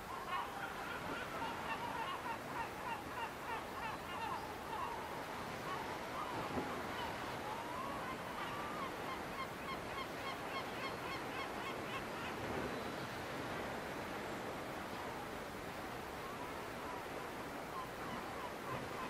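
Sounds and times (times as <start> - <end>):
gulls calling: 0.0 - 13.9.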